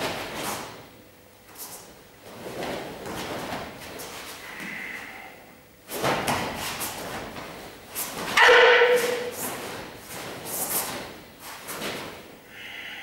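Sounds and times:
person shouting: 8.4 - 9.2.

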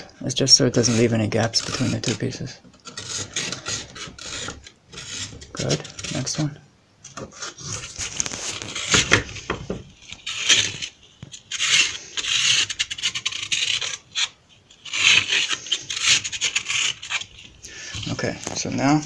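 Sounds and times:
sandpaper rasping on wood: 0.5 - 6.5, 7.4 - 9.5, 10.2 - 10.9, 11.5 - 14.3, 14.9 - 17.3.

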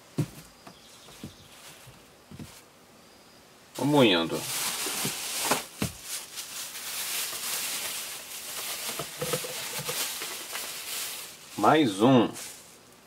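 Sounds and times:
plastic bag crinkling: 3.8 - 12.9.

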